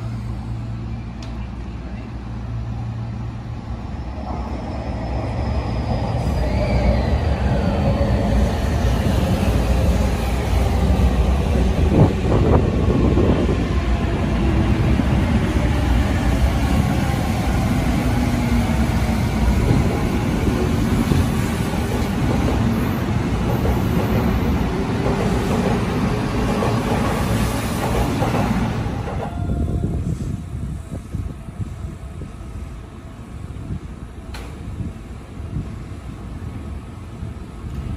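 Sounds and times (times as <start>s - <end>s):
electric train rumbling: 0.0s - 37.9s.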